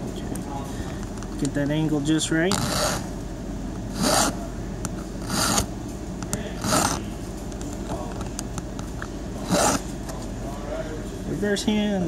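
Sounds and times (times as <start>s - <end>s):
file scraping metal key: 3.9s - 4.4s, 5.2s - 5.7s, 6.6s - 7.0s, 9.4s - 9.8s.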